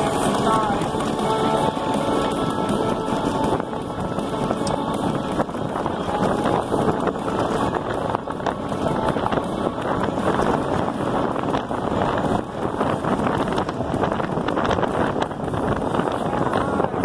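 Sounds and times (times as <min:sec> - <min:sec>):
tyres rolling on gravel: 0:00.0 - 0:17.0
wind buffeting microphone: 0:00.0 - 0:17.0.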